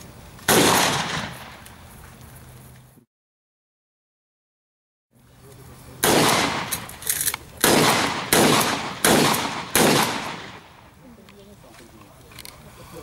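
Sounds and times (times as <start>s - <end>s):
shotgun blasts: 0.5s - 1.6s, 6.0s - 10.9s.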